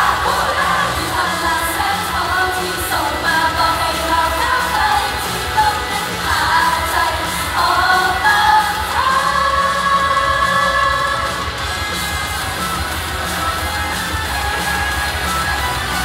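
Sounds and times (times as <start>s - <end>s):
women singing pop song: 0.0s - 11.7s
backing track: 0.0s - 16.0s.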